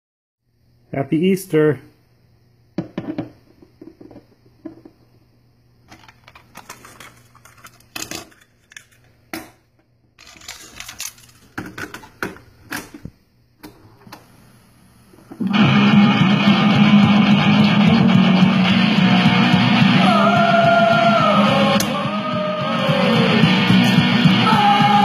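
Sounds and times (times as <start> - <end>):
small objects clattering on wood: 5.9 - 9.0, 10.2 - 12.3.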